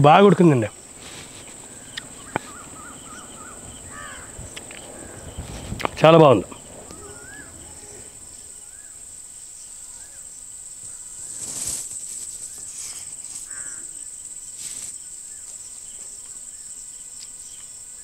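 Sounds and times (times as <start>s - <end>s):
crickets chirring: 0.0s - 18.0s
crickets eating rice: 0.0s - 18.0s
short chirping notes: 0.8s - 9.1s.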